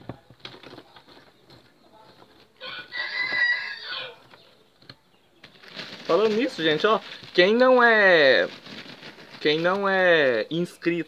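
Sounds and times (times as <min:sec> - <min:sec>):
rooster crowing: 0:02.6 - 0:04.2.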